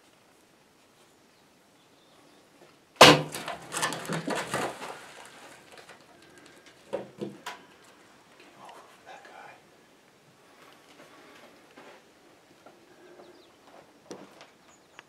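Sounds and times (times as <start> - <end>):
bow shot smack: 3.0 - 3.6.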